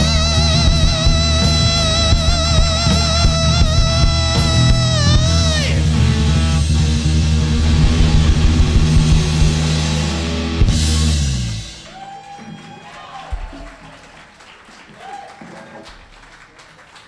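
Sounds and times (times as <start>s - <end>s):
rock band final chord: 0.0s - 11.8s
drum and cymbal hit: 6.9s - 12.0s.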